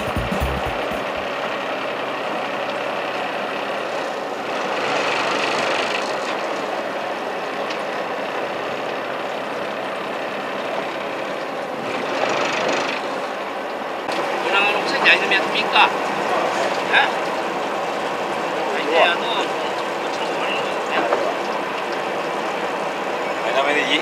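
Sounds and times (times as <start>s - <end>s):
boat engine idling: 0.0s - 1.6s.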